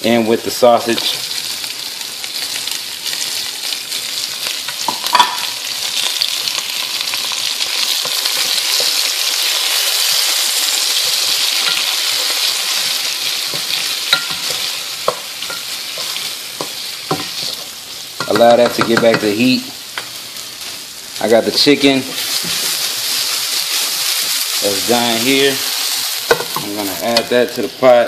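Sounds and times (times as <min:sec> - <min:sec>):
vegetables sizzling in oil: 0:00.0 - 0:28.0
wooden spoon knocking pot: 0:18.2 - 0:19.4.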